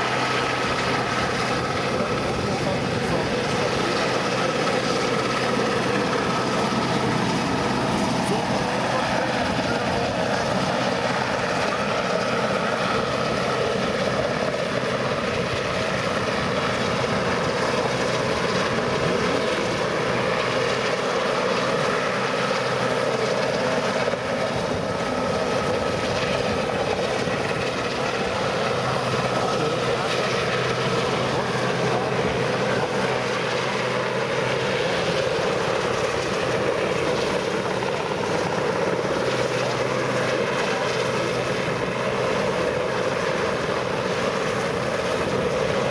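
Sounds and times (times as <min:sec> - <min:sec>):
helicopter hovering: 0:00.0 - 0:45.9.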